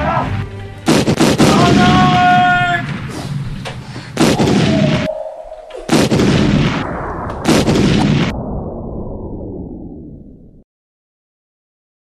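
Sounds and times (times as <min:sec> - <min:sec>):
explosion blasts: 0:00.9 - 0:10.6.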